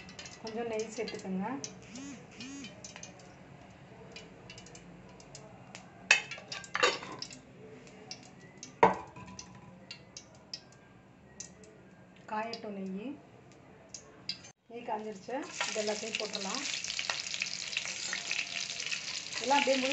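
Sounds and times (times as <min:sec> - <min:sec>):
ghee melting in hot oil: 0:00.0 - 0:10.7, 0:15.1 - 0:19.9.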